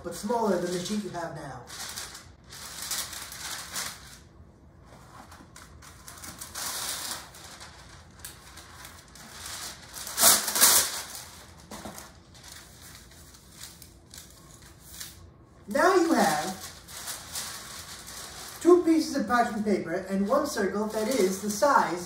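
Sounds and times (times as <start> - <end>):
paper rustling and crinkling: 1.7 - 4.3, 4.9 - 18.9, 20.5 - 22.0
paper tearing: 5.7 - 18.6.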